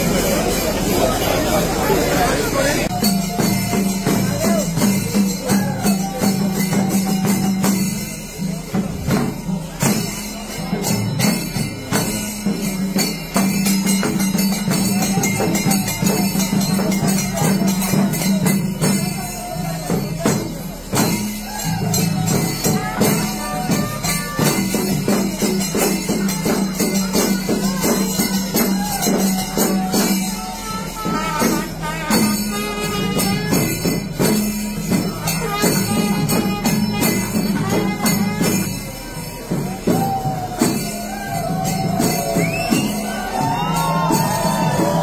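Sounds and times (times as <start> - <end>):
jingling cymbals: 0.0 - 45.0
rapid drum strokes: 0.0 - 45.0.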